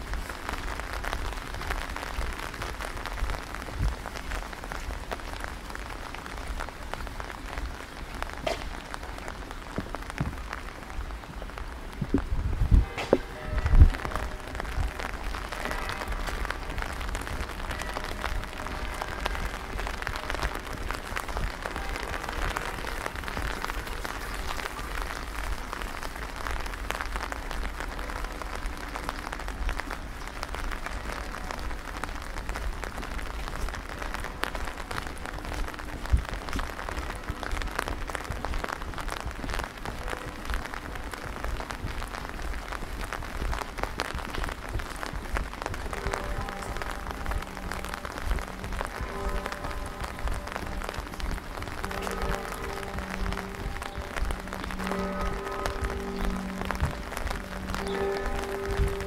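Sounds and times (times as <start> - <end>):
constant low rumble: 0.0 - 59.0
rain pattering: 0.0 - 59.0.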